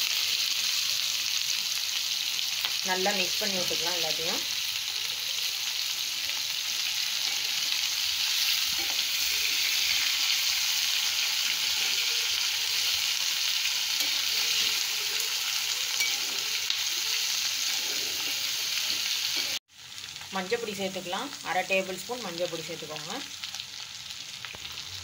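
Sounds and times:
vegetables sizzling in hot oil: 0.0 - 25.0
spatula stirring in pan: 7.0 - 19.6.

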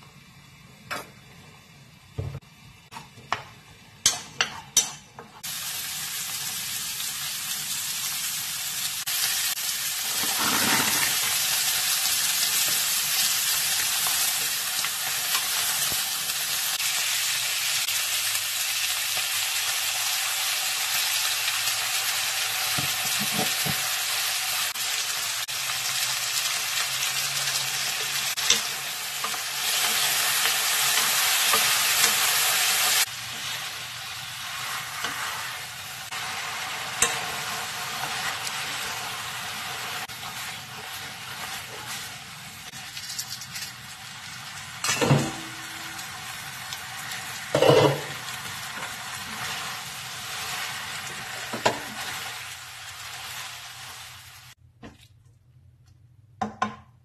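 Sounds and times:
onion and beef sizzling: 0.2 - 54.6.

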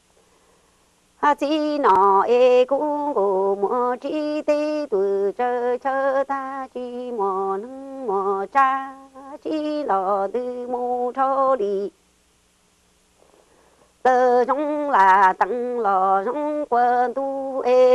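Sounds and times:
woman chanting unaccompanied: 1.2 - 12.0, 14.0 - 17.9.

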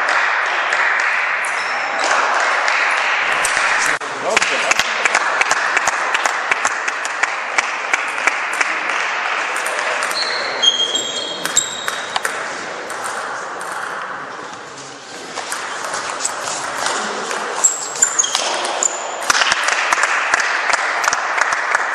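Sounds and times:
short high squeaks: 10.0 - 12.2.

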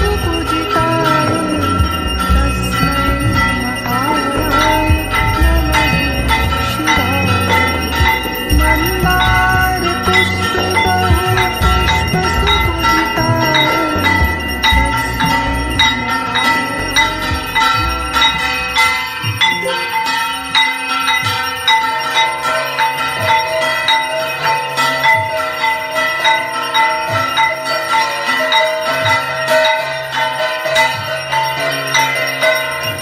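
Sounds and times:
low pulsing drone: 0.0 - 20.7
bells ringing: 0.0 - 33.0.

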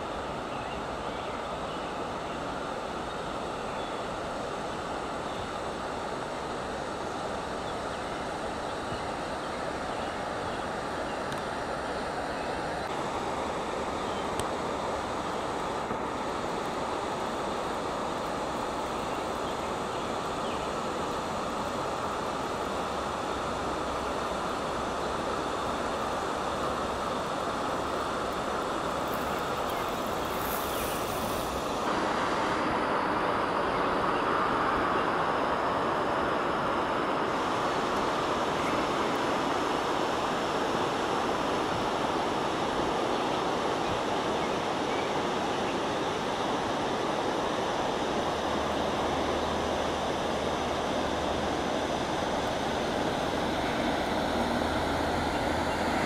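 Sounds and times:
small waterfall rushing: 0.0 - 56.0.

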